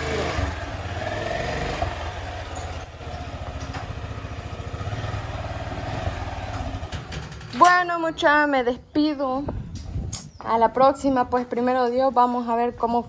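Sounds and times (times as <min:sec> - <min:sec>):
motorcycle engine putter: 0:06.4 - 0:08.0.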